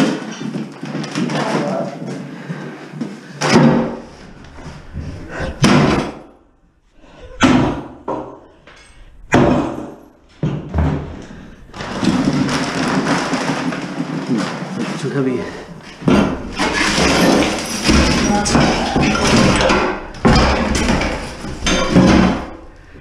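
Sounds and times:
sledgehammer smashing iron bathtub: 3.4 - 6.3, 15.9 - 22.8.

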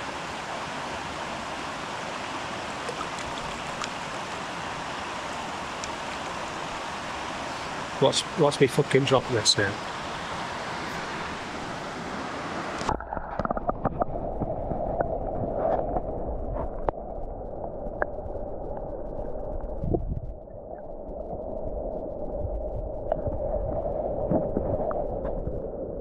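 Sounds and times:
churning water heard underwater: 0.0 - 8.0, 12.6 - 26.0
rushing waterfall stream: 0.0 - 13.0.

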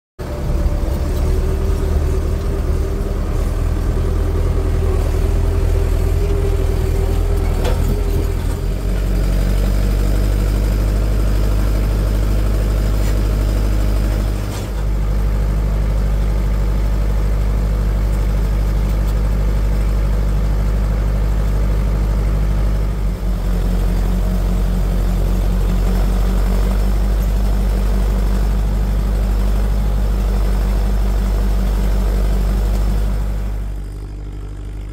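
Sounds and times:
tractor diesel engine running: 0.2 - 34.9.

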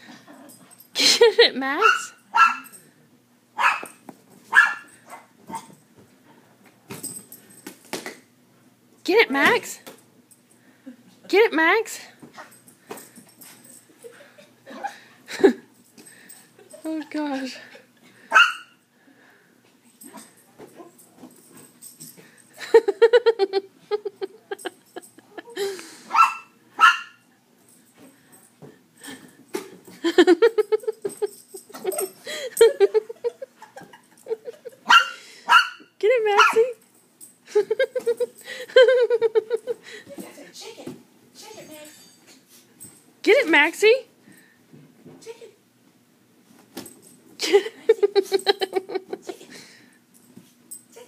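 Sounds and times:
small dog barking high yaps: 1.8 - 2.7, 3.6 - 5.7, 18.3 - 18.8, 26.1 - 27.2, 34.9 - 36.6.

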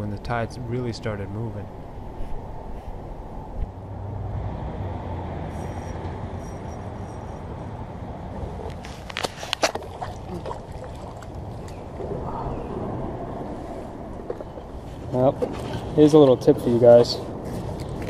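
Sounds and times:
low rumble of moving water: 8.3 - 16.0.

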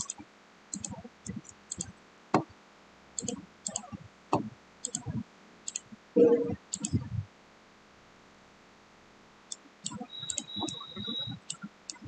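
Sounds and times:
mouse and keyboard clicks: 0.0 - 1.9, 3.2 - 5.9, 6.6 - 7.0, 9.5 - 12.0.

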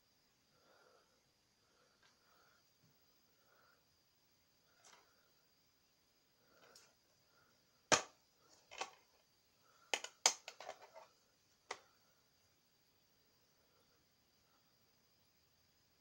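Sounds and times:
plastic case clicks and snaps: 10.0 - 11.0.

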